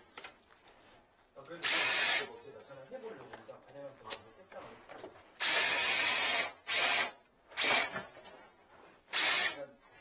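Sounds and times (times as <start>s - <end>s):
cordless drill whirring: 1.6s - 2.3s, 5.4s - 8.0s, 9.1s - 9.6s.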